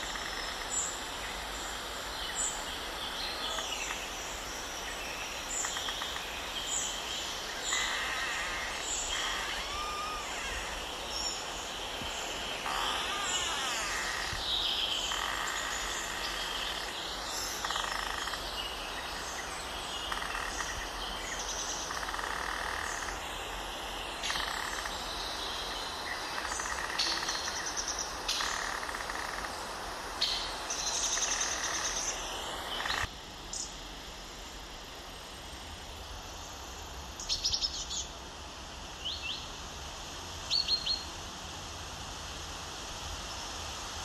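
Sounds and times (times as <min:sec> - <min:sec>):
steady hiss: 0:00.0 - 0:44.0
birds chirping: 0:05.2 - 0:23.2
sliding whistled bird calls: 0:07.7 - 0:10.8.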